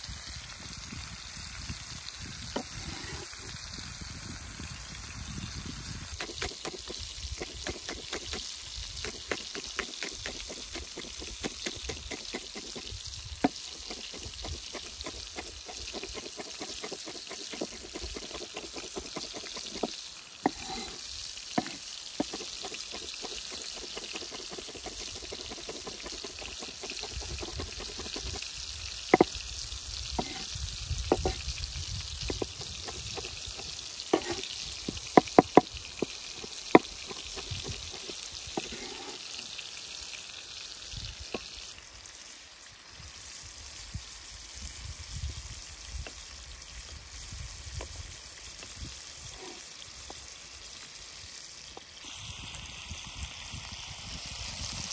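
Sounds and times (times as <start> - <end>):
pan sizzling: 0.0 - 54.9
knife chopping on wooden board: 6.2 - 8.4, 9.0 - 21.0, 21.6 - 28.4, 30.2 - 30.5, 31.1 - 31.4, 32.3 - 39.1.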